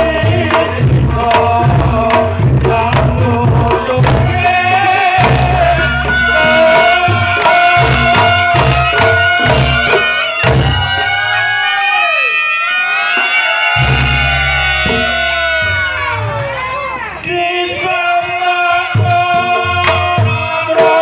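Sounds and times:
reedy shawm melody: 0:05.4 - 0:11.8.

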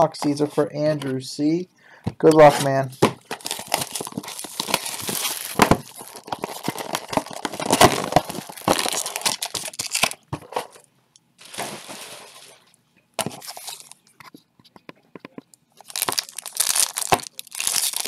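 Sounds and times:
plastic wrap crinkling and tearing: 0:03.2 - 0:10.2, 0:11.4 - 0:12.7, 0:15.8 - 0:18.0.

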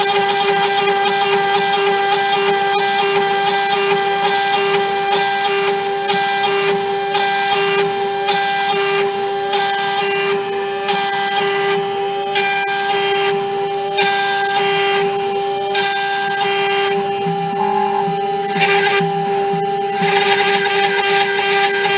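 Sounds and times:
router spindle whine: 0:00.0 - 0:21.9
end mill cutting: 0:14.0 - 0:21.9.

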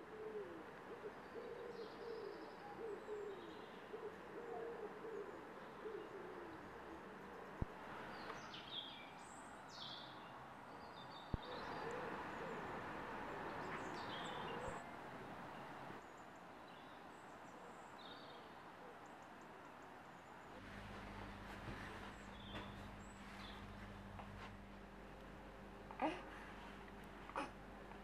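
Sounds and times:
songbirds chirping: 0:00.0 - 0:28.0
steady background hum: 0:20.2 - 0:28.0.

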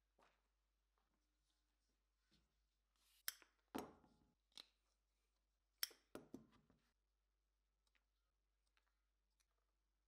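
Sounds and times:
hand tool metallic snaps: 0:05.8 - 0:06.0.

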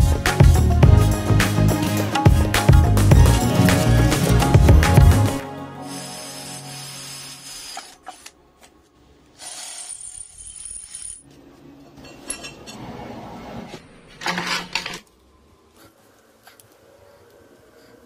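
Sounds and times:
cordless drill boring steel: 0:05.8 - 0:08.3, 0:09.4 - 0:10.2.

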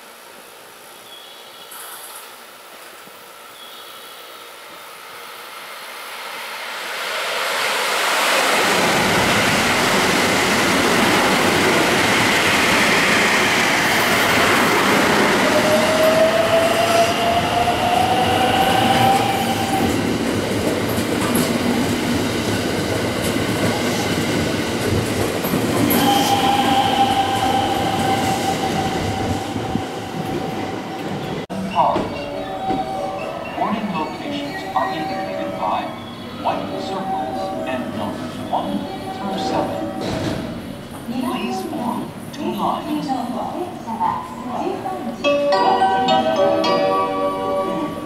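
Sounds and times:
electric train accelerating: 0:05.2 - 0:40.9
train wheels clattering over rails: 0:40.0 - 0:41.1.

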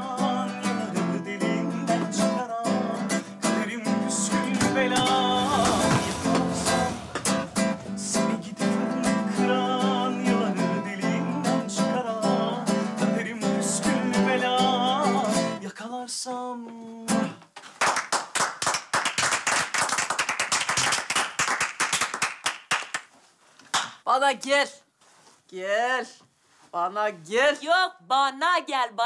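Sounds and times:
strummed acoustic guitar: 0:00.0 - 0:15.6
man singing: 0:00.0 - 0:17.4, 0:25.5 - 0:29.0
applause: 0:17.6 - 0:23.1.

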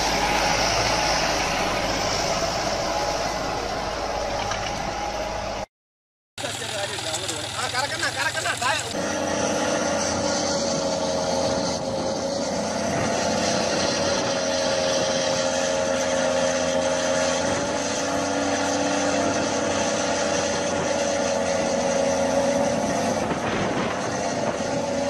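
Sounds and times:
tyres churning soil: 0:00.0 - 0:05.6, 0:06.4 - 0:25.0
tractor engine running under load: 0:06.4 - 0:12.0.

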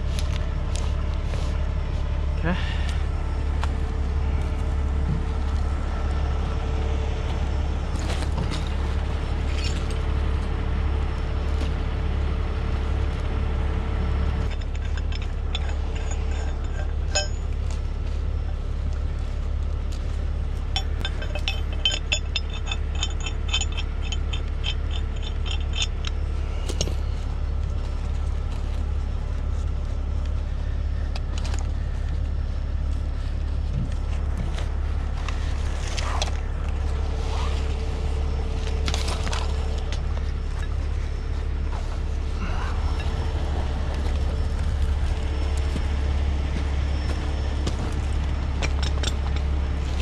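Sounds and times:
low engine hum: 0:00.0 - 0:50.0
small metallic clicks: 0:20.8 - 0:27.0.

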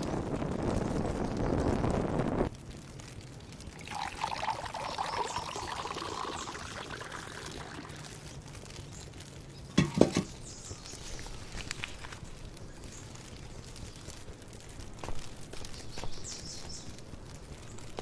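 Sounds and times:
liquid trickling into bowl: 0:03.7 - 0:08.3.

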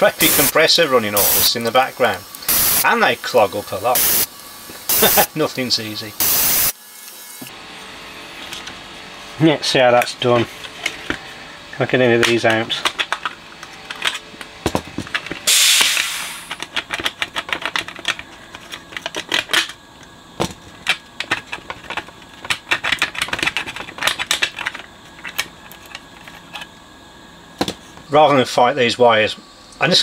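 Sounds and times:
short hiss: 0:02.5 - 0:02.8, 0:15.5 - 0:16.6.

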